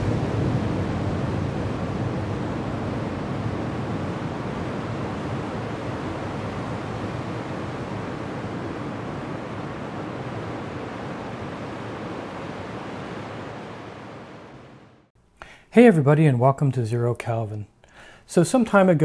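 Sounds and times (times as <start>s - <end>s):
steady low rushing noise: 0.0s - 15.1s.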